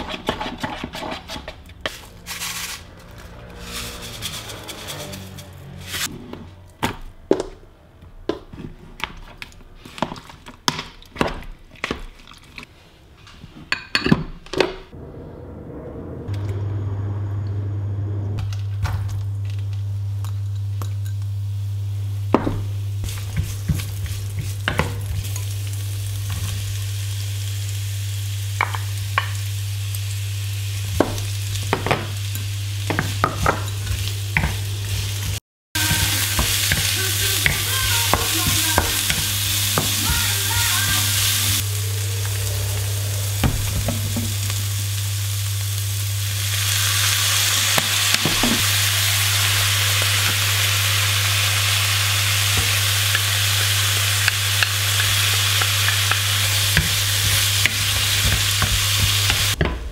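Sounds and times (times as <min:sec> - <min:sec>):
wooden spatula scraping a pan: 0:00.0 - 0:06.6
vegetables sizzling in a wok: 0:01.9 - 0:06.3, 0:18.4 - 0:59.9.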